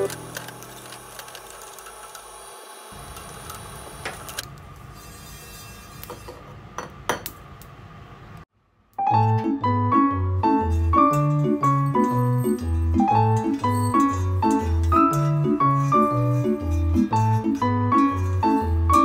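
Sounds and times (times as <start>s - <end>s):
piano-like music: 0.0s - 0.9s, 9.0s - 19.0s.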